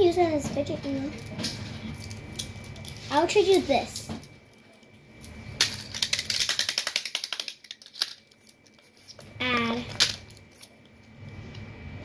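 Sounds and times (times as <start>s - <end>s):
fidget toy plastic clicking: 6.0s - 8.2s.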